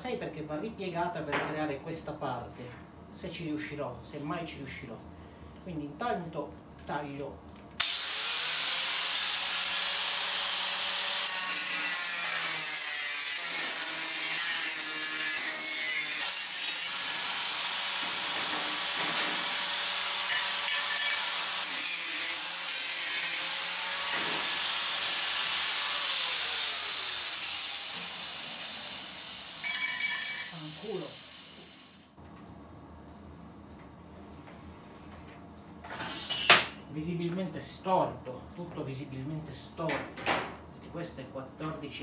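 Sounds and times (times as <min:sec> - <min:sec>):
angle grinder cutting sheet metal: 0:07.8 - 0:32.0
grinder motor winding down: 0:24.5 - 0:32.0.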